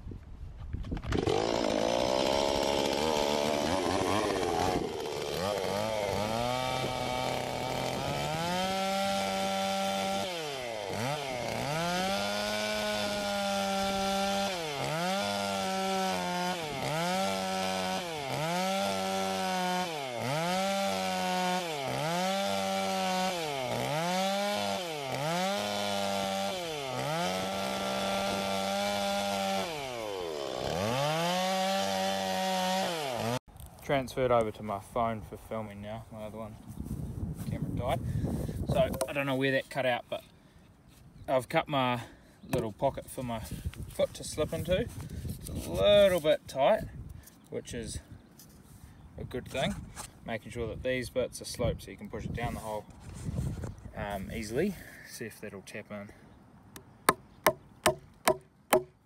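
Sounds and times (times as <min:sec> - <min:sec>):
chainsaw cutting wood: 0:00.9 - 0:33.5, 0:56.8 - 0:59.0.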